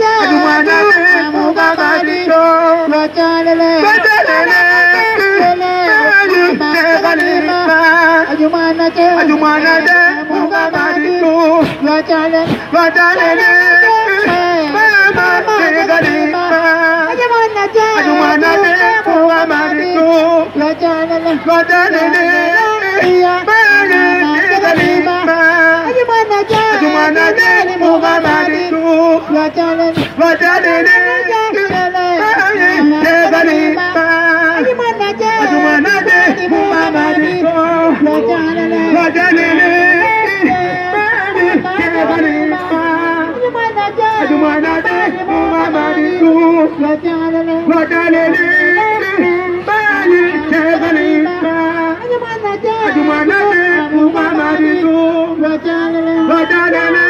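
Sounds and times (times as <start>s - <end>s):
voices singing together: 0.0s - 57.0s
sharp percussive hits: 10.7s - 12.9s.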